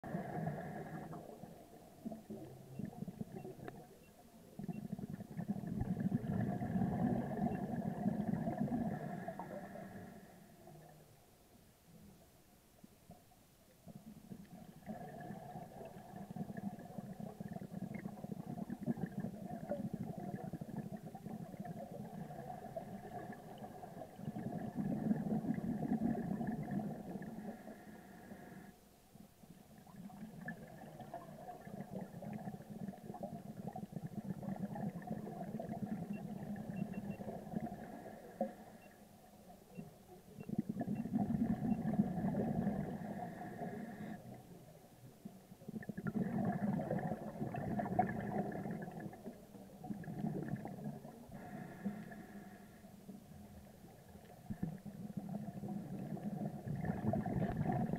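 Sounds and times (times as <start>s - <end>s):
underwater rumble: 0.0s - 12.3s, 13.1s - 57.9s.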